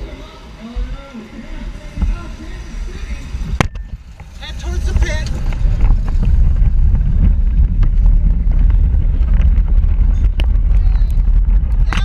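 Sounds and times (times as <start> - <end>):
road vibration rumble: 0.0 - 12.0
wind buffeting microphone: 0.0 - 12.0.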